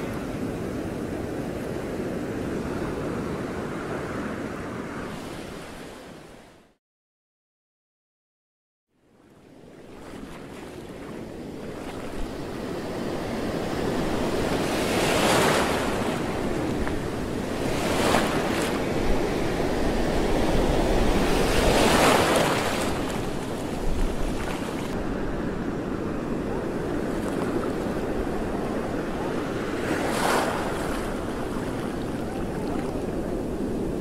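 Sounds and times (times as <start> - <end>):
wind rumbling on microphone: 9.6 - 34.0
sea waves washing: 9.8 - 34.0.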